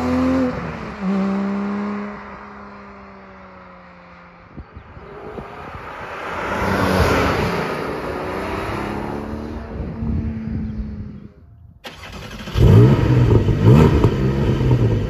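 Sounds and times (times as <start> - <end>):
sports car driving past: 0.0 - 11.2.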